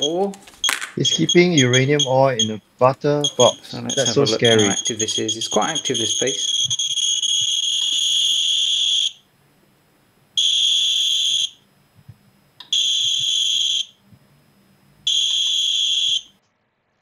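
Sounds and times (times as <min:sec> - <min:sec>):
geiger counter alarm beeping: 0:00.0 - 0:02.6, 0:03.2 - 0:09.2, 0:10.4 - 0:11.6, 0:12.7 - 0:14.0, 0:15.1 - 0:16.3.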